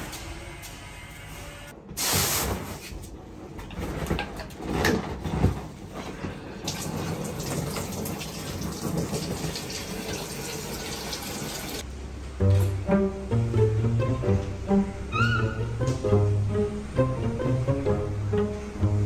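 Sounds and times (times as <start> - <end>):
tap water running: 6.6 - 11.8.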